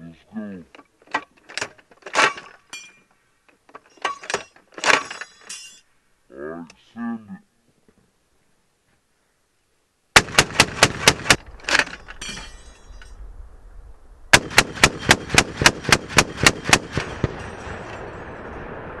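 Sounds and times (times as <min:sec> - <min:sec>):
machine gun bursts: 0:10.2 - 0:11.4, 0:14.4 - 0:17.4.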